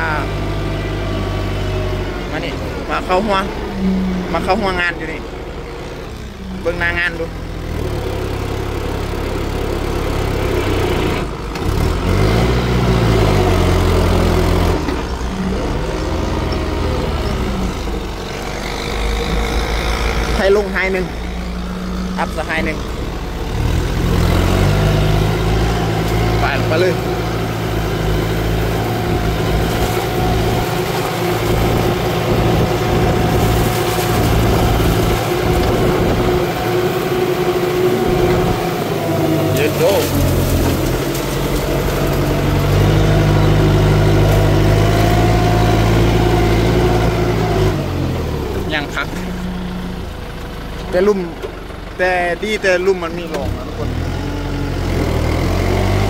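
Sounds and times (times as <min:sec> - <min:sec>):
tractor diesel engine revving: 0:00.0 - 0:56.0
steady whine: 0:25.4 - 0:43.4.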